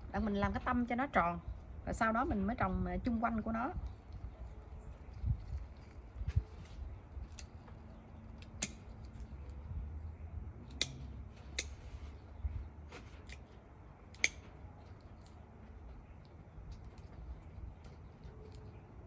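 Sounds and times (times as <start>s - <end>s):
scissors snipping stems: 5.3s - 9.6s, 10.6s - 12.1s, 14.1s - 15.7s.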